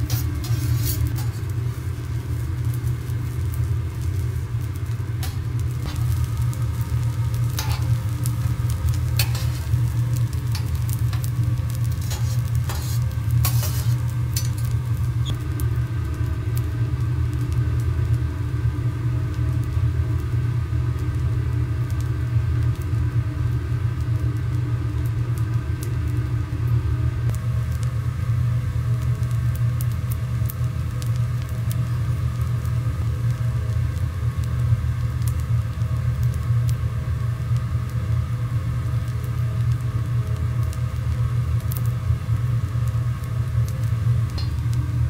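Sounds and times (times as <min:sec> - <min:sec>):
metal spatulas scraping: 0:00.0 - 0:01.5, 0:09.2 - 0:09.8, 0:12.0 - 0:14.7
rice sizzling on a griddle: 0:00.0 - 0:45.0
steady low hum: 0:00.0 - 0:45.0.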